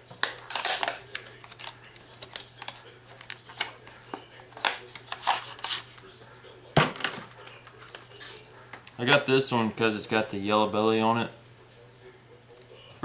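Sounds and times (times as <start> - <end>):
plastic packaging crinkling: 0.2 - 5.9.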